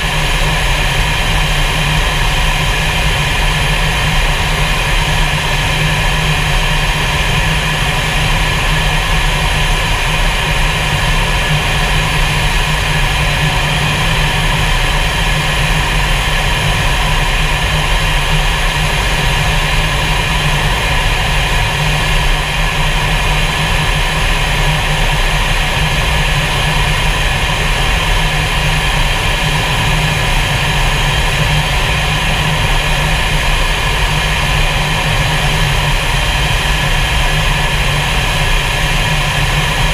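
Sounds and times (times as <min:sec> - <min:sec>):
jet engines and rushing airflow: 0:00.0 - 0:39.9.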